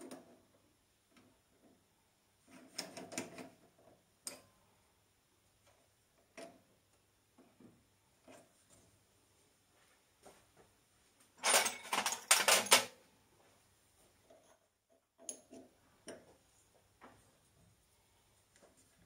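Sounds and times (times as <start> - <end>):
metal tools clattering: 11.4 - 12.9.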